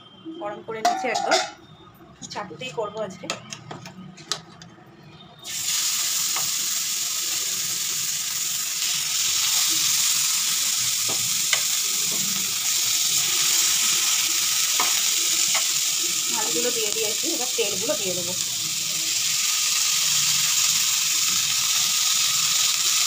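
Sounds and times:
fish sizzling on hot pan: 5.4s - 23.0s.

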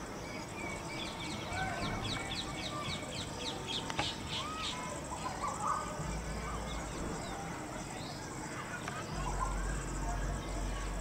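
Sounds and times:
outdoor background hiss: 0.0s - 11.0s
high downward-sweeping bird chirps: 0.2s - 8.2s.

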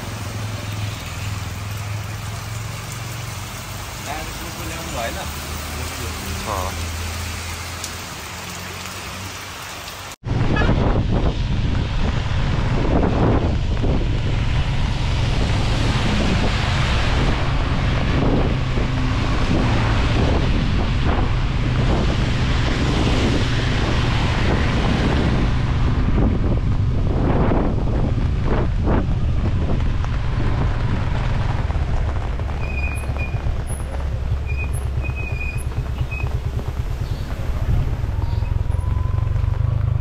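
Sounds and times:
motorcycle engine drone: 10.2s - 40.0s
wind rushing on microphone: 10.2s - 40.0s.

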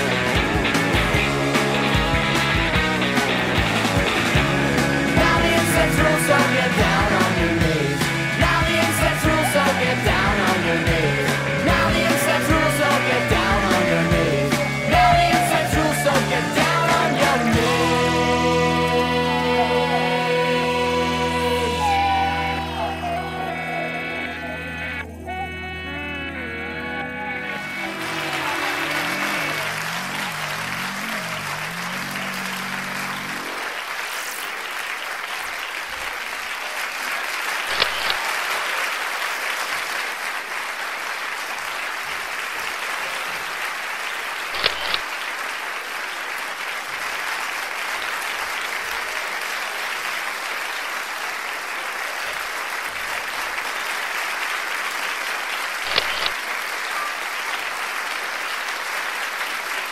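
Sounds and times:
applause: 0.0s - 18.0s, 27.5s - 59.9s
background music: 0.0s - 33.6s
sharp double clicks: 37.7s - 38.2s, 44.6s - 45.0s, 55.8s - 56.4s.

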